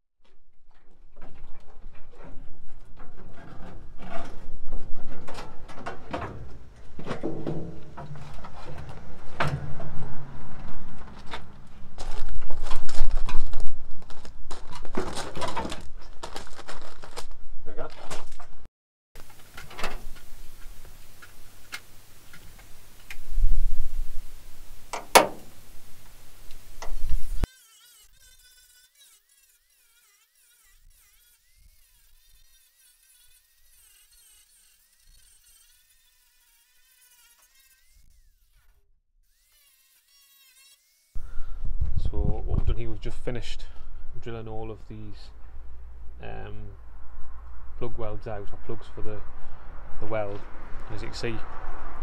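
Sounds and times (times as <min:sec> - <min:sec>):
flying insect buzzing: 0:22.7 - 0:38.7, 0:39.3 - 0:41.4.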